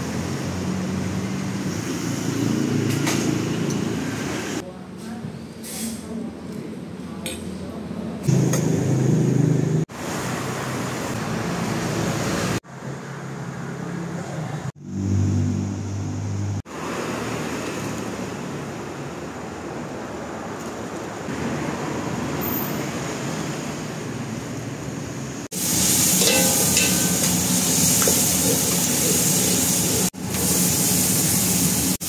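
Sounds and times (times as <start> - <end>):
passing traffic: 0.0 - 4.6, 8.2 - 32.0.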